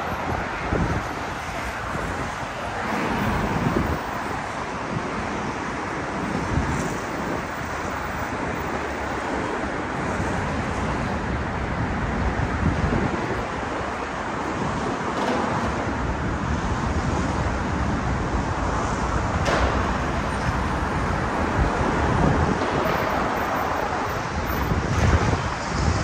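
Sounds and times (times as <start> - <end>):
cars passing: 0.0 - 26.0
wind on microphone: 0.0 - 26.0.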